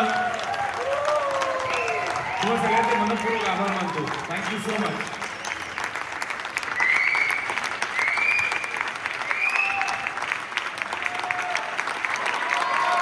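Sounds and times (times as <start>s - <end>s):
audience applauding: 0.0s - 13.0s
short rising whistles: 6.7s - 10.2s.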